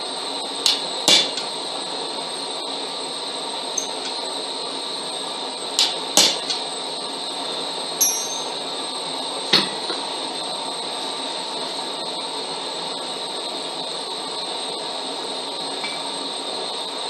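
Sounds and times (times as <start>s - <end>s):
hammer striking steel on anvil: 8.0s - 8.6s.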